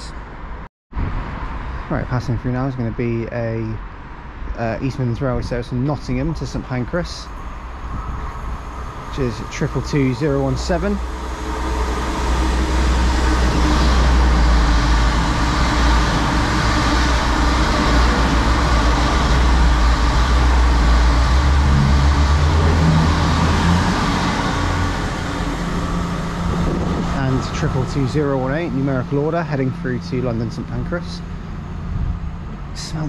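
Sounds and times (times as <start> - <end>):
diesel train passing: 0.0 - 33.0
rail noise: 0.0 - 33.0.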